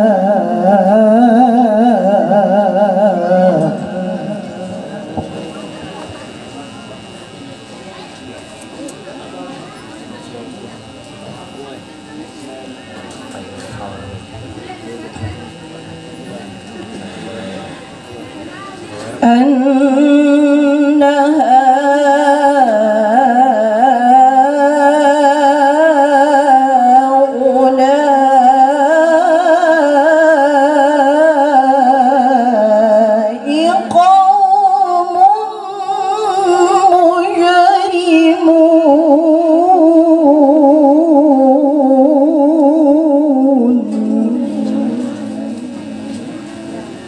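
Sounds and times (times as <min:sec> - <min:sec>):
woman reciting melodically: 0:00.0 - 0:06.4, 0:18.5 - 0:46.4.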